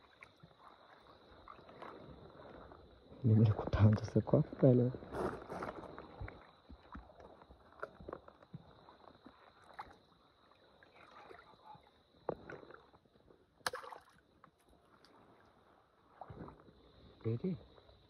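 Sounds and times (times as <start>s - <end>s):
shallow water sloshing: 0.0s - 3.2s, 5.0s - 17.2s
sharp splashes: 13.6s - 14.2s.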